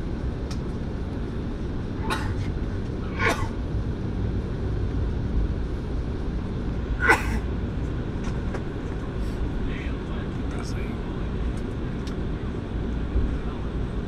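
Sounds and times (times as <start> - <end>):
airliner cabin rumble: 0.0 - 14.0.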